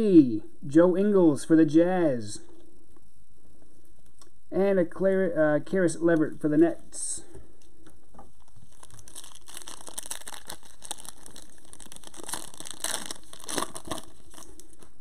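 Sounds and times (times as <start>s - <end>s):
foil wrapper crinkling and tearing: 8.4s - 15.0s.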